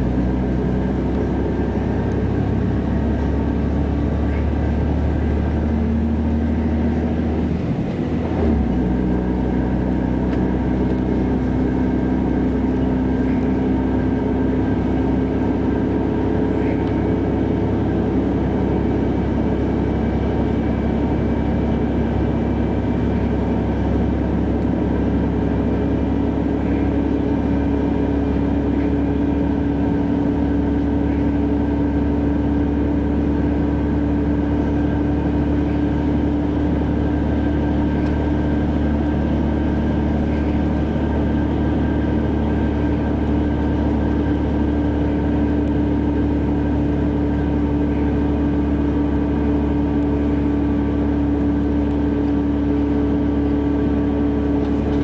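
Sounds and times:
bus diesel engine running: 0.0s - 55.0s.

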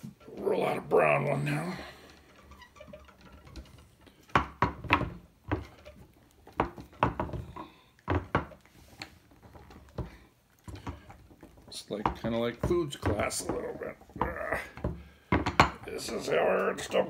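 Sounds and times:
rolling pin knocking on wooden board: 2.4s - 8.6s, 9.4s - 17.0s.

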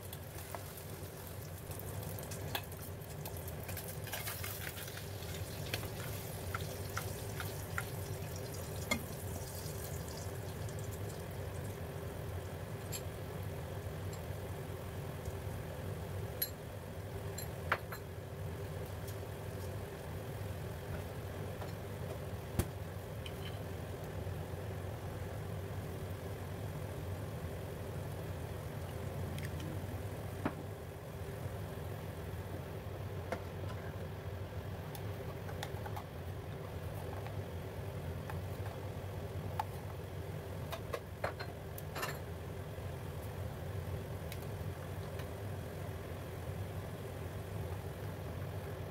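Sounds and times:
broth simmering with pops: 0.0s - 16.6s.

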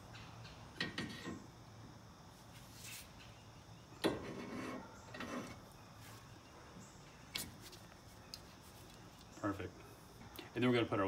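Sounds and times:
faint metal rubbing and handling: 4.0s - 6.3s, 7.3s - 9.4s.

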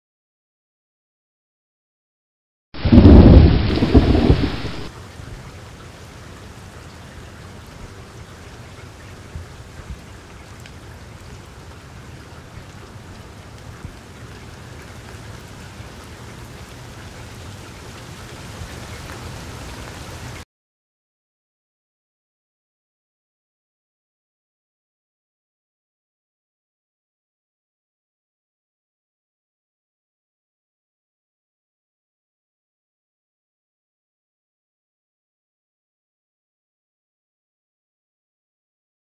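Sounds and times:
deep thunderclap: 2.8s - 4.9s
steady rain falling: 2.8s - 20.4s.

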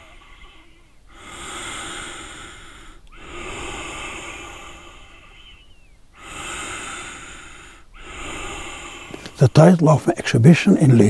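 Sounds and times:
person breathing deeply: 0.0s - 10.0s.

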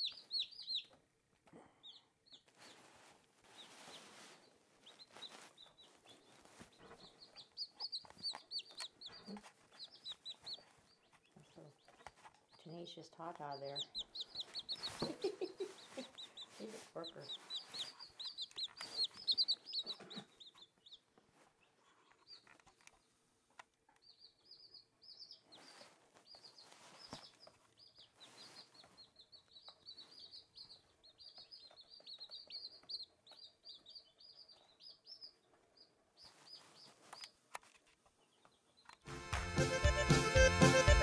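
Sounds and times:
chicks peeping: 0.0s - 41.0s
music: 39.1s - 41.0s.

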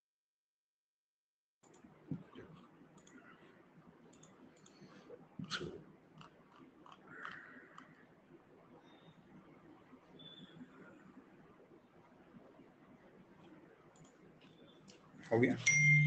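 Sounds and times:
small clicks: 1.6s - 3.5s, 4.1s - 8.0s.

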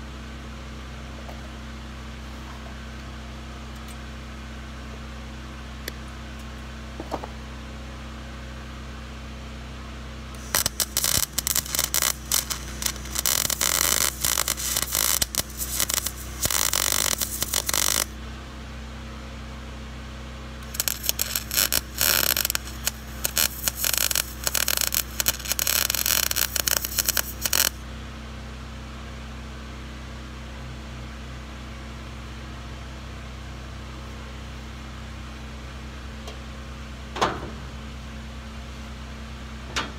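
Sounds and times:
welding arc crackling: 10.3s - 18.2s, 20.6s - 27.8s.

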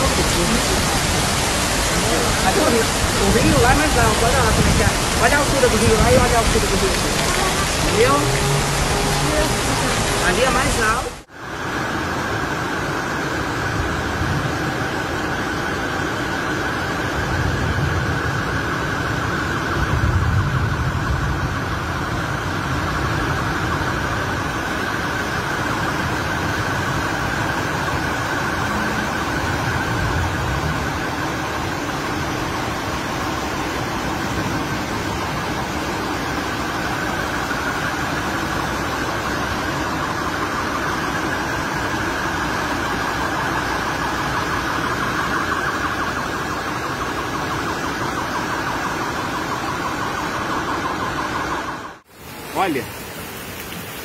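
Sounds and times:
floodwater rushing: 0.0s - 54.0s
heavy rain: 0.0s - 54.0s
low rumble: 17.3s - 24.5s.

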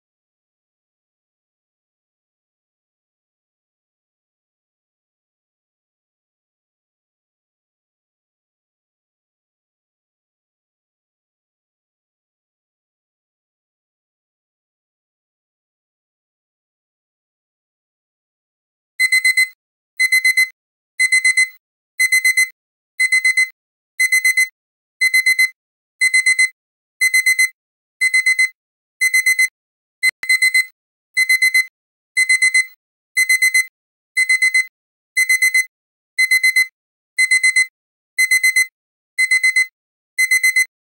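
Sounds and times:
alarm clock beeping: 19.0s - 40.7s.

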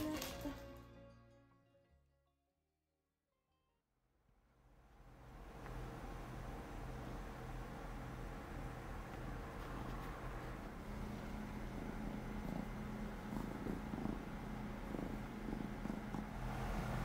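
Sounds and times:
cat purring: 6.2s - 17.0s.

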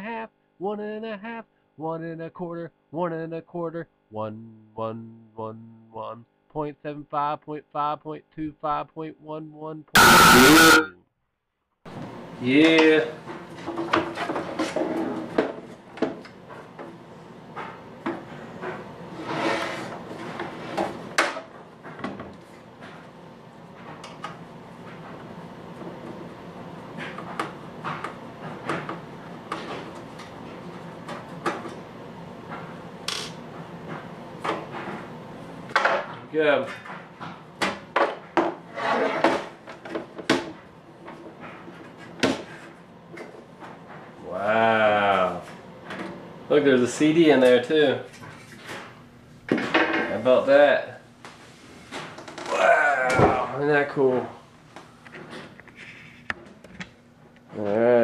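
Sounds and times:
metal scrape: 19.2s - 19.9s.

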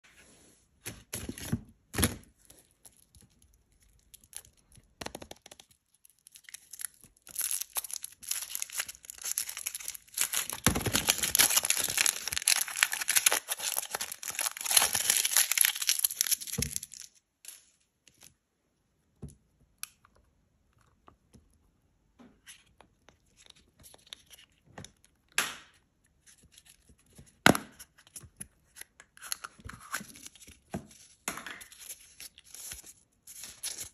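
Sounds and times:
foil wrapper crinkling and tearing: 5.9s - 17.6s.

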